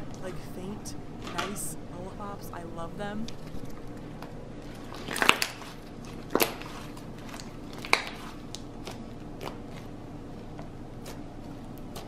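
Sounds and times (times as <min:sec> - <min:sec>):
faint slime crackles: 0:03.4 - 0:12.0
slime popping: 0:04.9 - 0:09.8.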